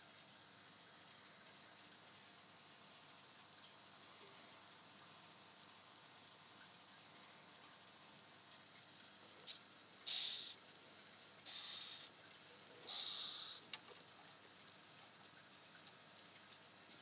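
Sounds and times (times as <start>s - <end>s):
cockroach hissing: 9.4s - 10.6s, 11.4s - 12.2s, 12.8s - 13.6s.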